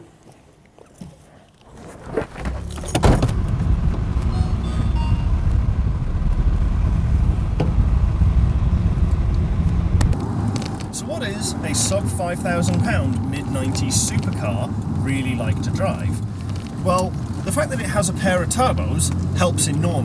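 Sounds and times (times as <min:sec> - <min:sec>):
car door shutting: 0:02.1 - 0:05.4, 0:07.5 - 0:07.8
car engine running: 0:02.4 - 0:12.3.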